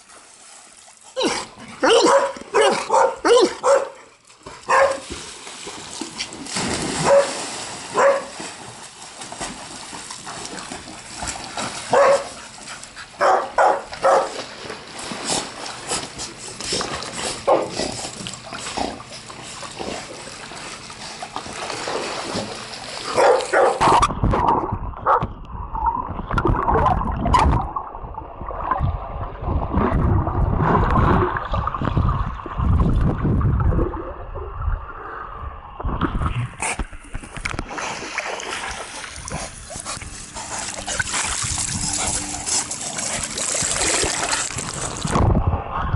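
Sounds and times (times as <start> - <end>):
splashing in pool: 0.0 - 25.2, 25.8 - 34.4, 36.1 - 45.5
dogs barking: 1.8 - 5.0, 7.0 - 8.4, 11.9 - 12.4, 13.2 - 14.4, 17.4 - 17.8, 23.1 - 24.0, 25.0 - 25.2
muffled underwater paddling: 4.4 - 45.9.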